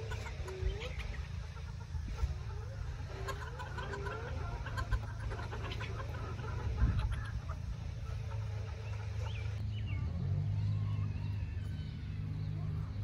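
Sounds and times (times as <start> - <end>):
chickens clucking: 0.0 - 10.0, 10.6 - 13.0.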